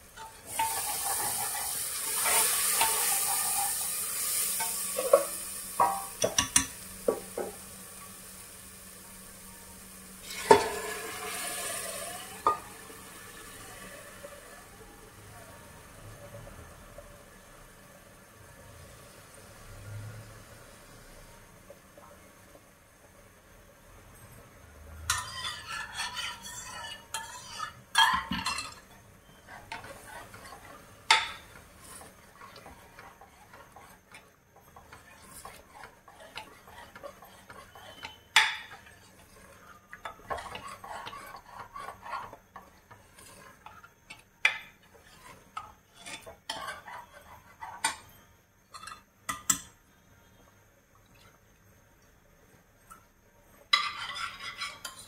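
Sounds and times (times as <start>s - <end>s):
spoon knocking against pot: 5.0s - 7.6s
metal spoon scraping in pot: 25.1s - 49.6s, 53.8s - 55.0s.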